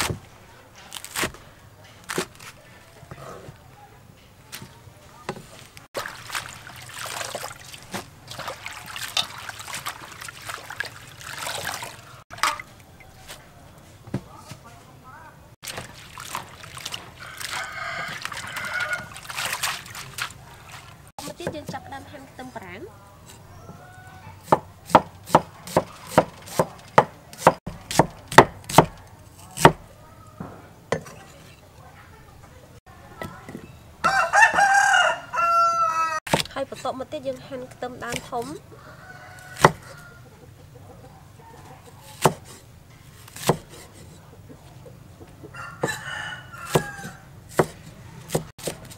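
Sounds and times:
water splashing and trickling: 4.5s - 13.7s, 15.6s - 22.8s, 25.6s - 27.0s
cleaver chopping on wooden board: 24.4s - 29.0s, 29.6s - 29.9s, 36.3s - 36.5s, 39.6s - 40.0s, 42.1s - 42.6s, 43.2s - 44.2s, 46.7s - 48.9s.

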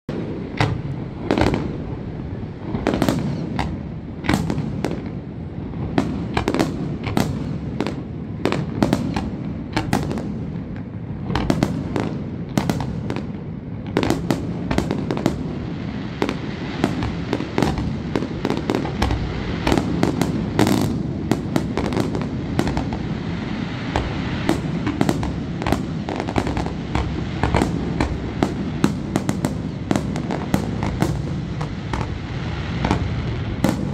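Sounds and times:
firework crackle: 0.1s - 33.9s
firework shells bursting: 16.2s - 33.9s.

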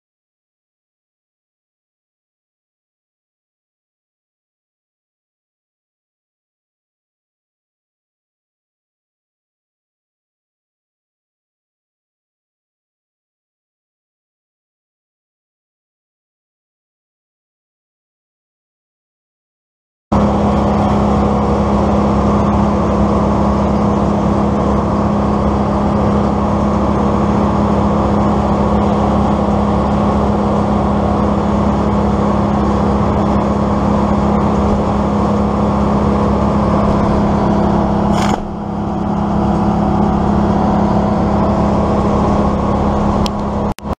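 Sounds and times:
motor humming steadily: 20.2s - 44.0s.

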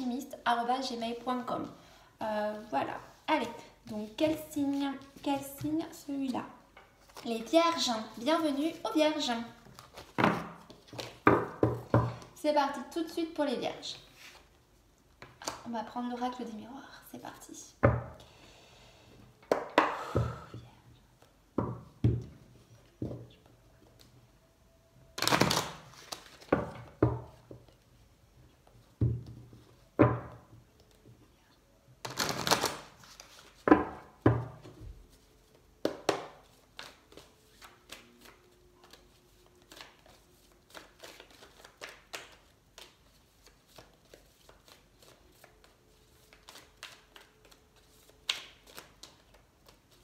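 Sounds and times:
cards rustling: 25.8s - 26.5s, 36.5s - 50.0s.

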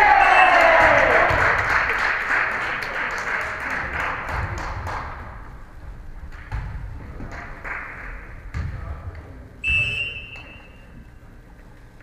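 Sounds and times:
spectators clapping and cheering: 0.0s - 5.5s, 7.2s - 8.5s.

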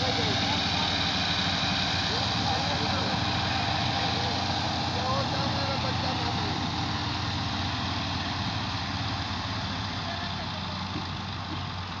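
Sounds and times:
tractor engine idling: 0.0s - 12.0s.

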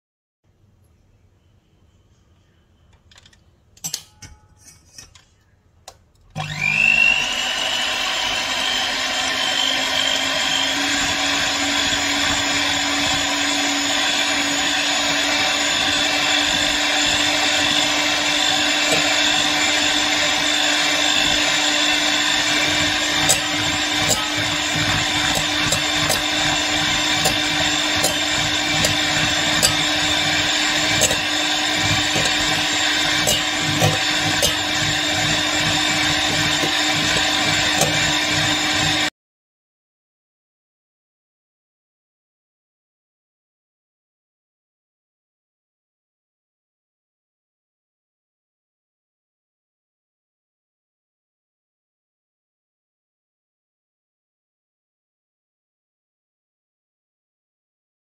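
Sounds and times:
electric hand mixer whine: 6.4s - 39.1s
beaters whipping in metal bowl: 16.5s - 39.1s.

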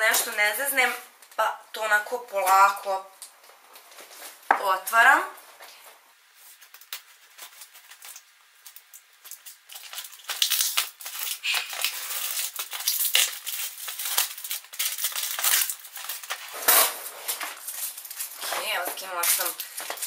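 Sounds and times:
packaging crinkling and rustling: 6.3s - 20.0s.

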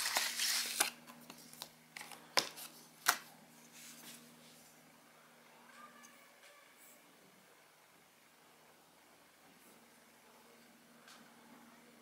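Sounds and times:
plastic packaging rustling: 0.0s - 3.3s.

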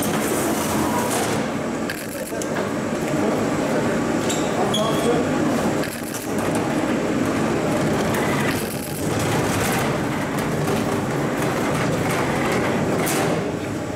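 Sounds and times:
metal trolley rolling on hard floor: 6.4s - 13.4s.

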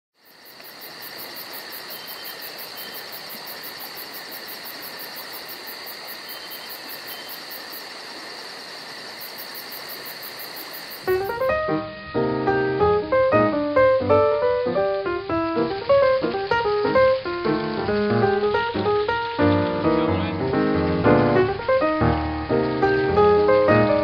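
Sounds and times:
insect chorus trilling: 0.2s - 12.8s, 14.4s - 20.6s.

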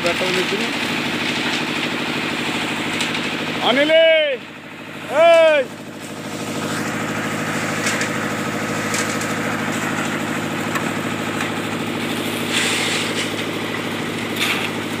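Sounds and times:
concrete mixer engine running: 0.0s - 15.0s
rushing scraping noise: 12.2s - 13.6s.

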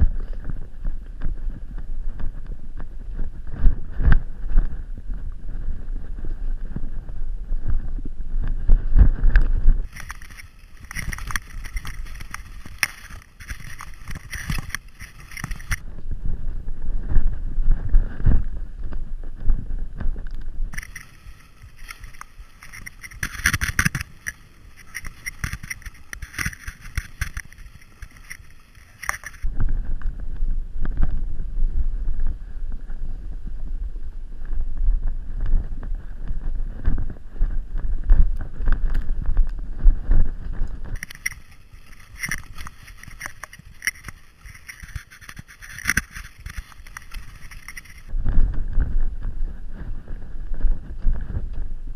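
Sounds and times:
bike rattling over bumps: 0.0s - 51.9s
high buzzing whine: 0.0s - 51.9s
wind buffeting microphone: 0.0s - 51.9s.

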